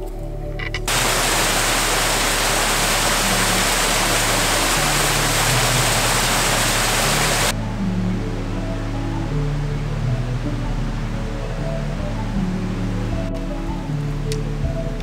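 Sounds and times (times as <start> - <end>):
soft background music: 0.0 - 15.0
waterfall rushing over rocks: 0.9 - 7.5.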